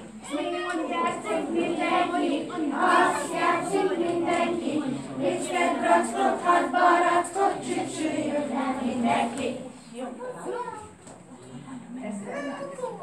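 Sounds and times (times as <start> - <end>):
children singing in unison: 0.0 - 9.8.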